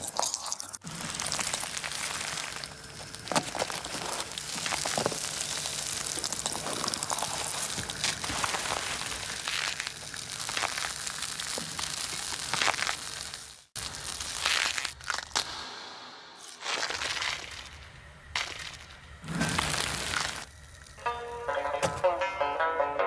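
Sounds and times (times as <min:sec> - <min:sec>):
crepe sizzling on griddle: 0:00.8 - 0:15.2.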